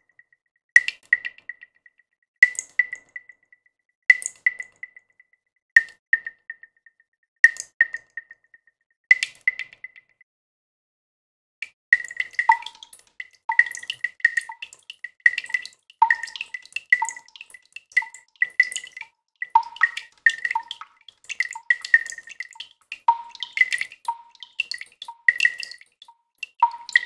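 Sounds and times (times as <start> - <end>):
water drops plinking into water: 11.6 - 27.0.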